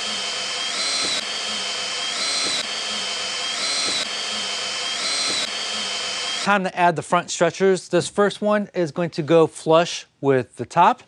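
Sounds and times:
drill faint click: 0:00.0 - 0:06.5
cordless drill motor whining: 0:00.0 - 0:06.6.

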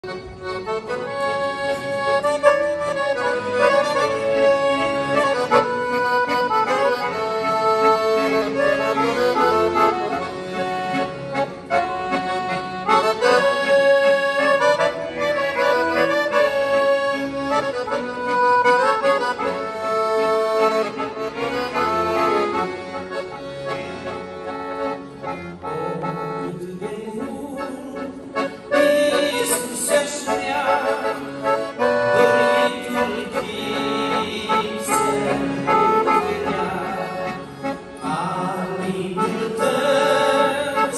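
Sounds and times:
accordions playing a hymn: 0:00.0 - 0:40.9.

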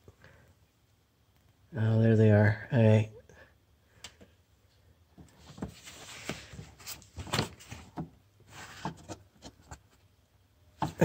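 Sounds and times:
rustling: 0:05.2 - 0:10.2.

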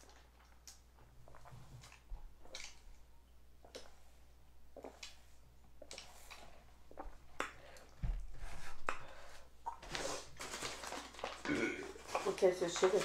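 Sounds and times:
rustling handling noises: 0:09.8 - 0:13.0.

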